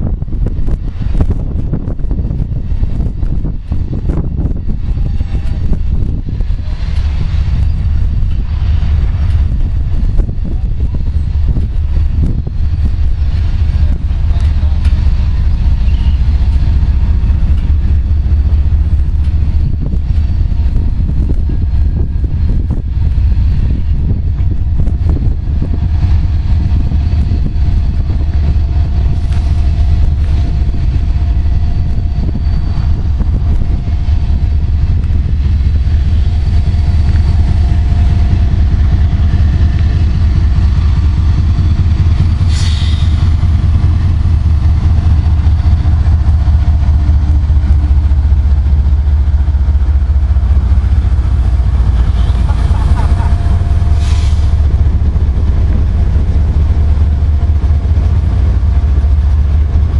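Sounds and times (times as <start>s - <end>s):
locomotives rumbling past: 0.0s - 59.9s.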